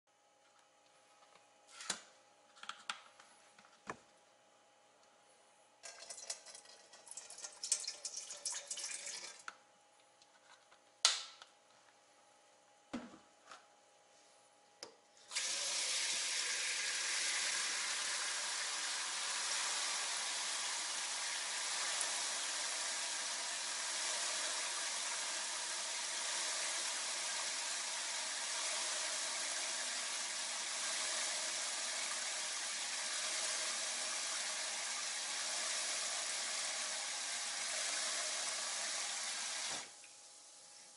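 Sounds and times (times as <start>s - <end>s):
liquid splashing into steel bowl: 5.8s - 9.5s
tap water running into bowl: 5.8s - 9.5s, 15.3s - 40.2s.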